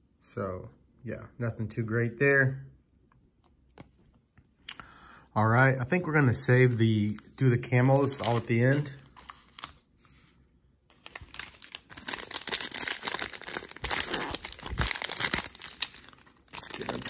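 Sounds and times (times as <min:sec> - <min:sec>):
cellophane wrapper crinkling: 0:07.0 - 0:09.8, 0:10.9 - 0:17.0.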